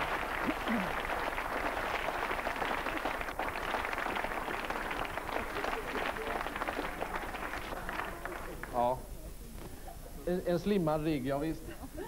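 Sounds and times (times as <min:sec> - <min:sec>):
audience applauding: 0:00.0 - 0:08.8.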